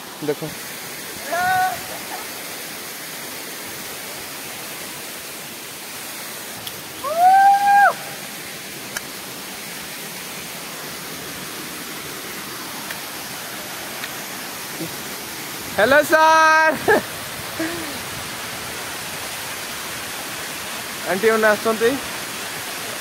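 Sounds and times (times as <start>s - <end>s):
waterfall pouring onto rocks: 0.0s - 23.0s
person shouting: 1.2s - 2.2s, 7.0s - 8.2s.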